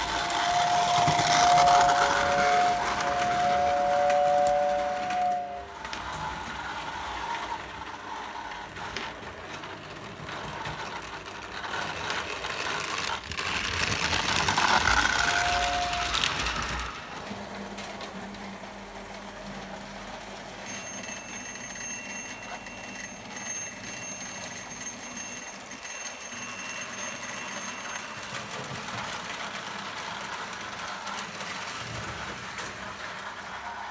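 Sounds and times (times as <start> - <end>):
high tone: 0.0 - 5.7, 15.0 - 16.6
two-note train whistle: 0.0 - 5.8, 15.0 - 16.7
toy trains rumbling on track: 0.0 - 33.9.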